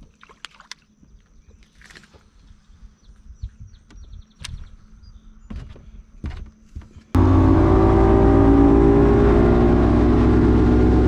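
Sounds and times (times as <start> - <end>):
wind: 0.0 - 11.0
outboard engine running: 7.2 - 11.0.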